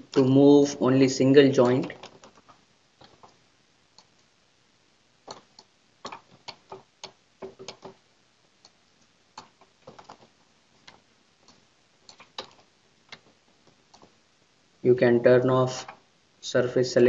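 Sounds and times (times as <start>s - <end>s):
mouse and keyboard clicking: 5.2s - 8.0s, 9.4s - 14.1s.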